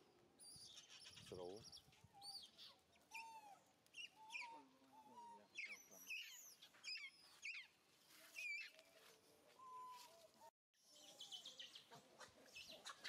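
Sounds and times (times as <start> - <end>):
birds chirping: 0.0 - 9.0.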